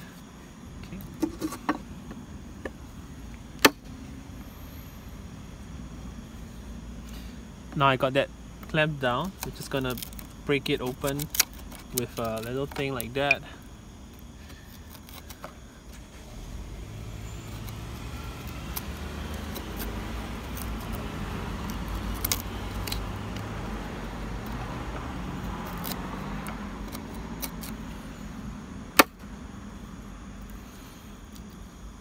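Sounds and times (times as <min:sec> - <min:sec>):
vehicle engine hum: 0:00.0 - 0:32.0
sharp wood crack: 0:09.4 - 0:13.4, 0:17.4 - 0:23.8, 0:28.9 - 0:29.3.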